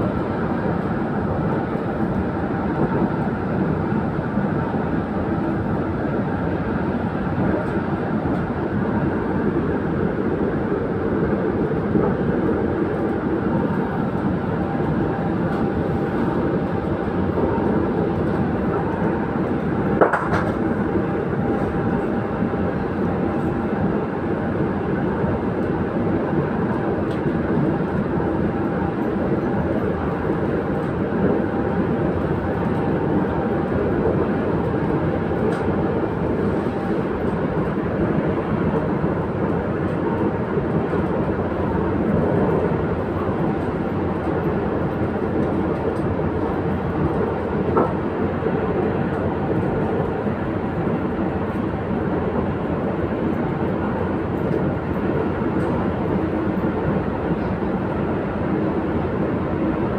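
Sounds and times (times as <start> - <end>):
train wheels rumbling on track: 0.0 - 59.9.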